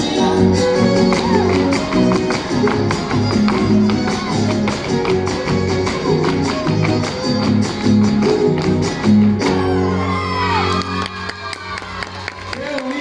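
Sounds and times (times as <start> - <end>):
strummed string instruments: 0.0 - 9.9
violin melody with slides: 0.0 - 11.0
percussive dance footwork: 0.6 - 9.7.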